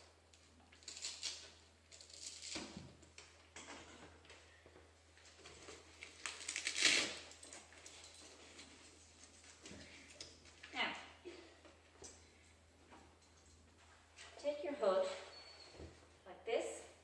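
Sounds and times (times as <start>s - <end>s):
velcro straps ripping: 6.0s - 7.4s.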